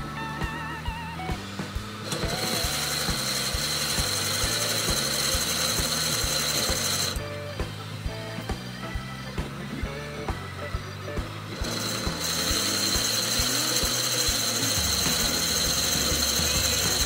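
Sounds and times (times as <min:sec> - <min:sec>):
background music: 0:00.0 - 0:17.0
drill bit boring into spinning wood: 0:02.0 - 0:07.3, 0:11.5 - 0:17.0.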